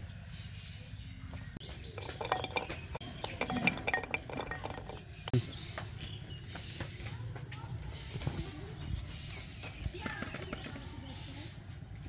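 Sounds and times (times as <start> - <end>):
metal pots and utensils clinking: 1.8 - 5.4.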